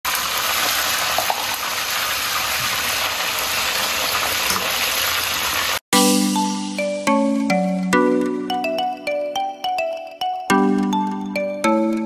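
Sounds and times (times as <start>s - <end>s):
food sizzling in hot oil: 0.1s - 5.8s
bright mallet percussion music: 6.0s - 12.0s.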